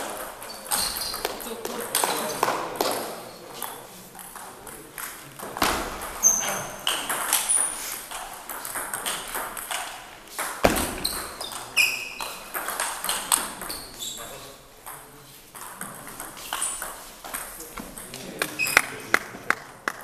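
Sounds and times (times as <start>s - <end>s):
shoes squeaking on floor: 0.0s - 4.0s, 5.6s - 8.2s, 10.4s - 14.6s, 18.5s - 19.0s
table tennis balls clicking: 0.0s - 18.8s.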